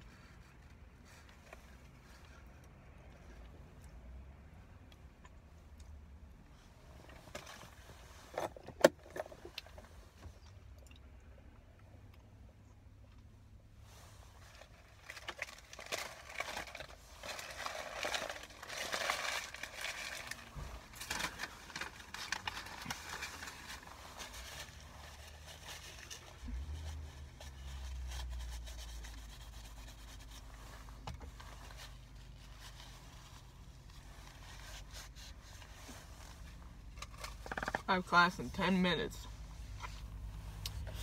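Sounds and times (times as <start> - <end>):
low steady rumble: 0.0 - 41.0
paper wrapper crinkling: 14.5 - 30.4.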